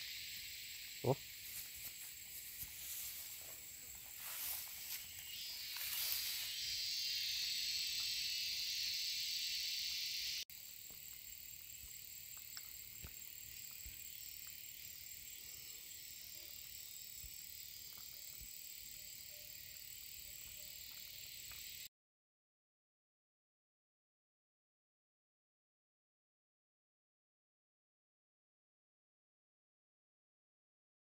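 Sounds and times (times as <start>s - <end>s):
high-pitched insect drone: 0.0s - 21.9s.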